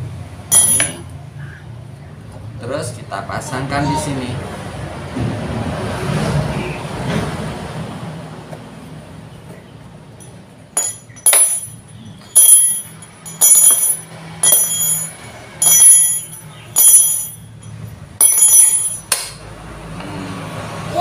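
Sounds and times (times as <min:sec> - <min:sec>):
small bell dinging: 0:00.5 - 0:01.0, 0:10.2 - 0:19.1.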